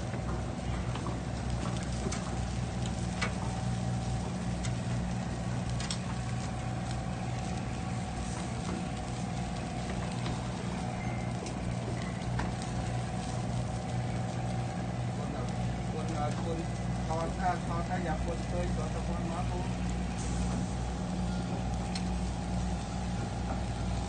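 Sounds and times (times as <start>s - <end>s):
boat engine humming: 0.0s - 24.0s
tongs clicking on grill grate: 5.7s - 6.5s.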